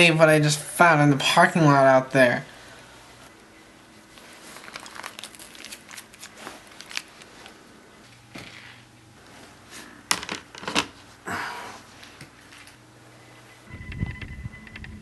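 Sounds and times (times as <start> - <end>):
rustling and crinkling: 4.0 - 11.2.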